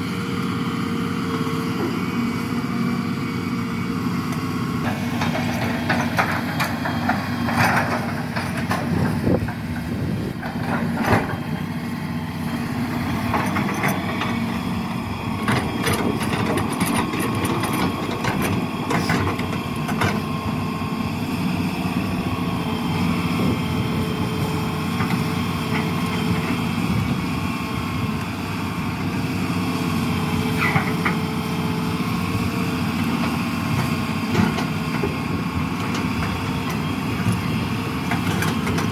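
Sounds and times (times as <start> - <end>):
diesel engine running: 0.0 - 38.9.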